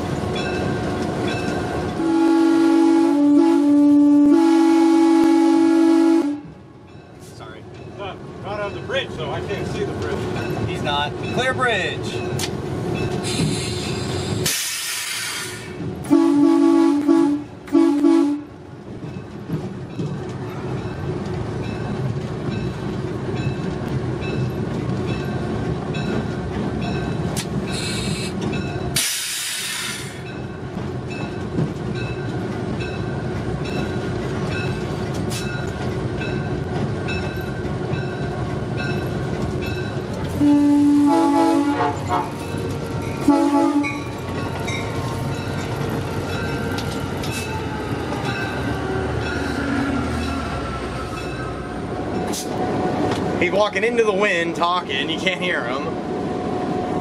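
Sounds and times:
rolling train wheels: 0.0s - 57.0s
locomotive air horn blasts: 2.0s - 6.5s, 16.1s - 18.5s, 40.4s - 42.4s, 43.2s - 44.0s.

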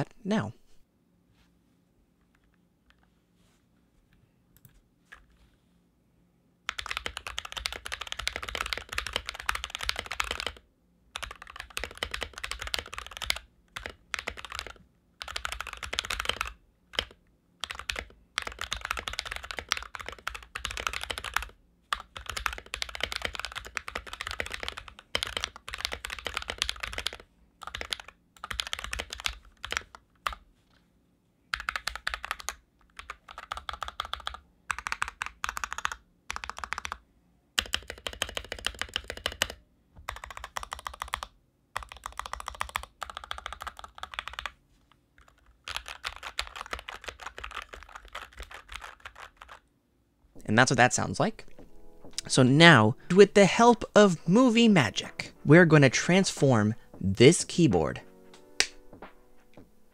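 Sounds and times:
mechanical keyboard typing: 6.7s - 10.6s, 11.2s - 30.4s, 31.5s - 37.0s, 37.6s - 44.6s, 45.2s - 49.6s.

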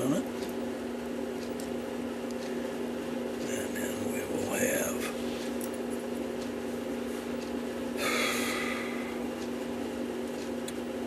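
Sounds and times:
small clicks of clock parts: 1.4s - 2.6s.

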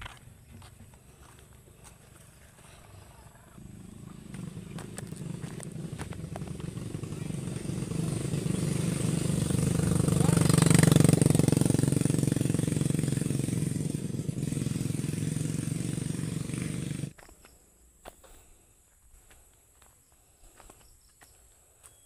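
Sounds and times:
small engine running: 0.0s - 17.2s.

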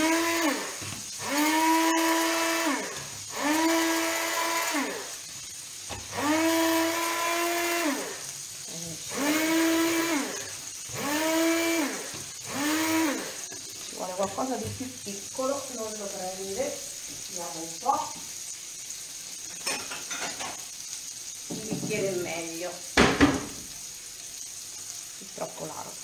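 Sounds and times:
electric hand blender pulsing: 0.0s - 18.6s.

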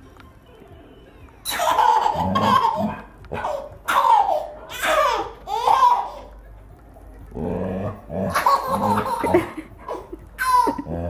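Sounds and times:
baby laughing: 1.4s - 6.3s, 8.2s - 11.0s.

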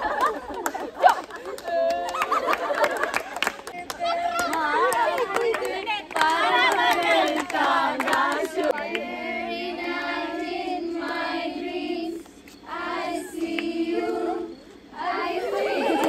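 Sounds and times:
women and girls chanting: 6.2s - 16.0s.

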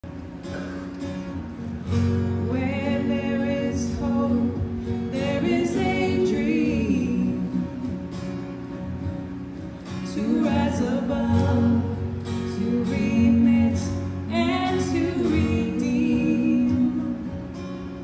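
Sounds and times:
women singing: 2.4s - 8.0s, 10.0s - 17.5s.

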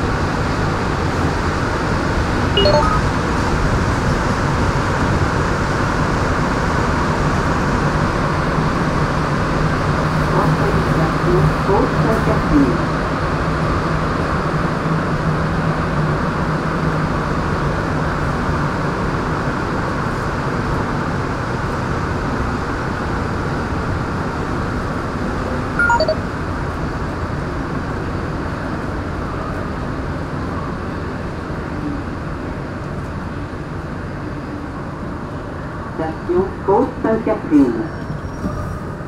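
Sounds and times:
metro train rumbling in tunnel: 0.0s - 39.0s
brief sharp high sound: 2.6s - 3.2s, 25.8s - 26.2s.

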